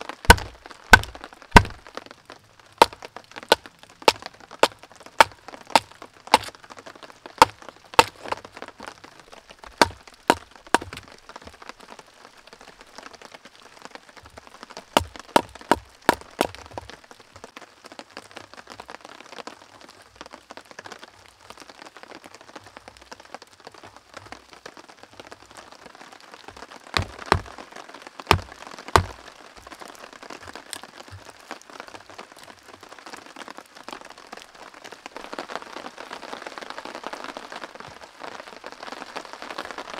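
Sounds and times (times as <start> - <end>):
rain pattering: 0.0 - 39.9
blade chopping kindling: 0.3 - 1.8, 2.8 - 6.5, 7.4 - 8.4, 9.8 - 11.0, 15.0 - 16.9, 27.0 - 27.5, 28.3 - 29.2.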